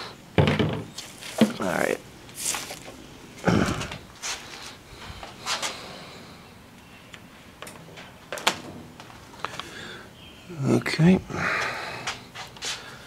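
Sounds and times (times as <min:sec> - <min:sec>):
handling knocks and clicks: 0:07.1 - 0:09.7.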